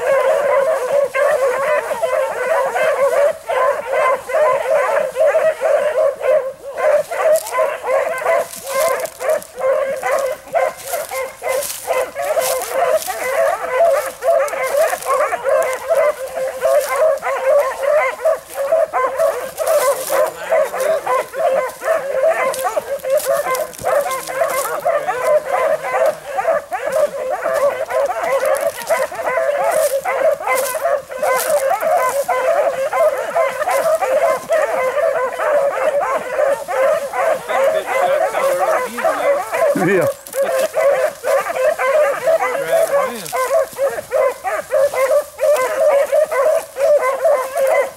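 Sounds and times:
dogs barking and baying: 0.0s - 47.9s.

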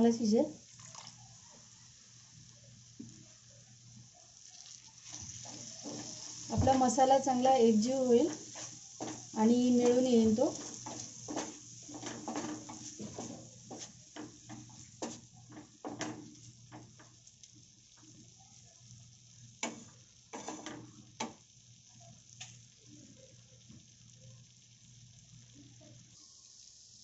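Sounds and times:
sauce sizzling softly: 0.0s - 27.0s
spatula scraping frying pan: 4.6s - 16.9s.

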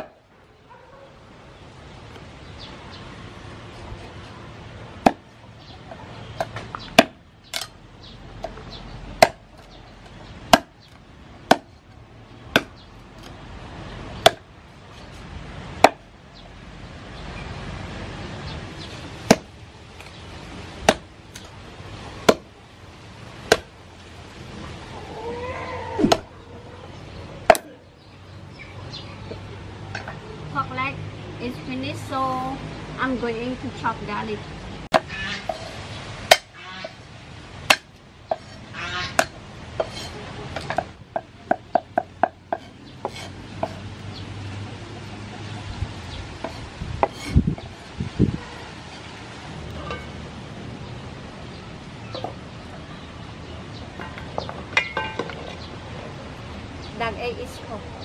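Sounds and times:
cleaver chopping on wooden block: 5.0s - 5.3s, 6.4s - 7.7s, 9.2s - 9.8s, 10.5s - 10.8s, 11.5s - 11.7s, 12.5s - 13.3s, 14.2s - 14.5s, 15.8s - 16.0s, 19.3s - 20.1s, 20.8s - 21.5s, 22.3s - 22.5s, 23.5s - 23.7s, 27.5s - 27.7s, 36.3s - 36.5s, 37.7s - 38.5s, 39.2s - 43.8s.

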